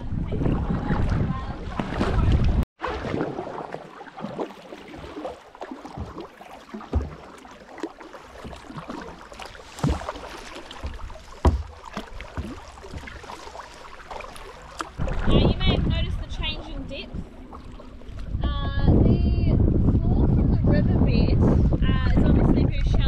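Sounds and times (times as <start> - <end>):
paddle splashing in water: 0.0 - 19.0.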